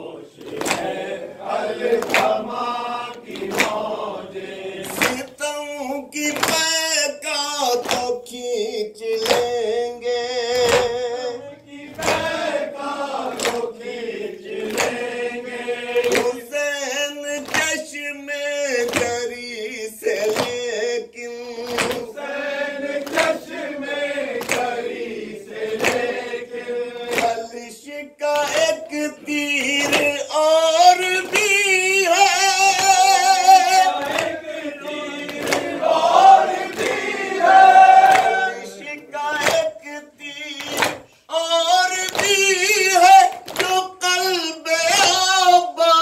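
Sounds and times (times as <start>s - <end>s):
rhythmic chest-beating strikes: 0.0s - 5.4s, 11.8s - 16.6s, 21.6s - 27.6s, 28.4s - 39.8s
group of men singing: 0.0s - 46.0s
man singing over a microphone: 5.0s - 12.3s, 16.1s - 22.2s, 26.7s - 34.2s, 38.4s - 46.0s.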